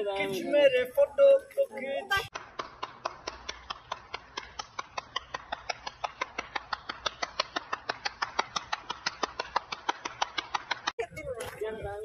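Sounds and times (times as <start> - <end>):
person clapping fast: 2.3 - 11.0.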